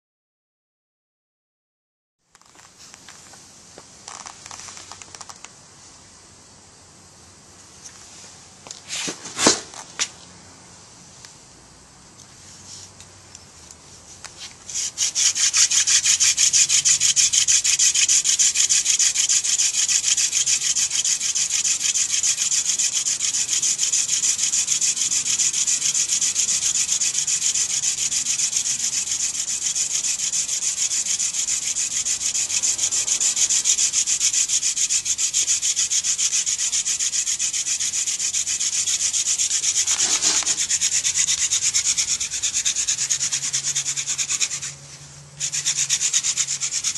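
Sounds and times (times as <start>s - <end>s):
wooden spindle rubbing wood: 14.2s - 46.9s.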